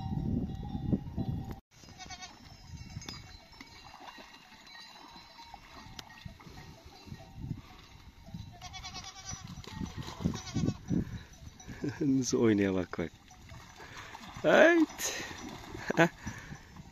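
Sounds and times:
neck bells clinking: 0:00.0 - 0:16.9
sheep and goats bleating: 0:01.8 - 0:02.6, 0:08.5 - 0:11.8.

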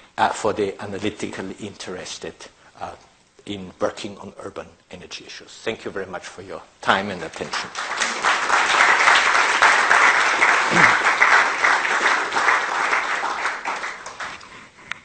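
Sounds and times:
audience clapping: 0:07.3 - 0:15.0.

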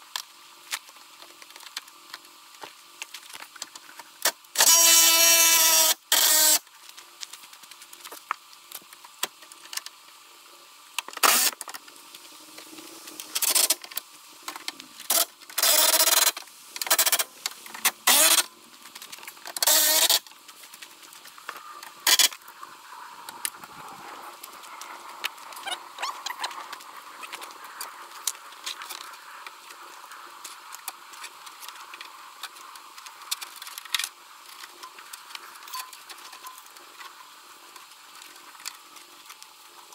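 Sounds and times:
cordless power tool bursts: 0:04.6 - 0:06.6, 0:11.2 - 0:11.6, 0:18.0 - 0:18.5, 0:19.6 - 0:20.2.

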